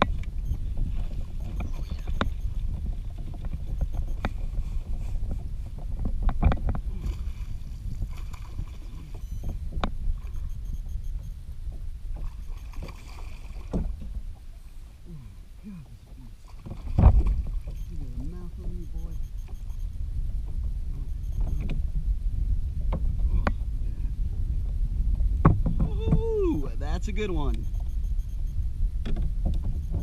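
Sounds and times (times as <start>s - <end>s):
wind and water rumble: 0.0s - 30.0s
water splashes: 6.8s - 11.2s, 12.1s - 19.8s.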